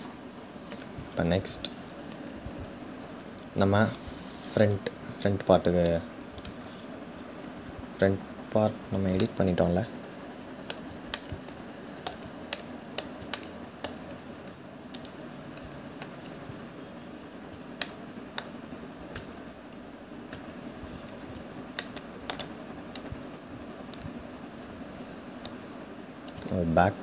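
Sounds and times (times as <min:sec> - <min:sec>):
low background hum: 0:00.0 - 0:27.0
keyboard and mouse clicking: 0:09.0 - 0:09.4, 0:10.6 - 0:16.4, 0:17.7 - 0:20.6, 0:21.3 - 0:23.2, 0:23.8 - 0:24.3, 0:25.0 - 0:26.6.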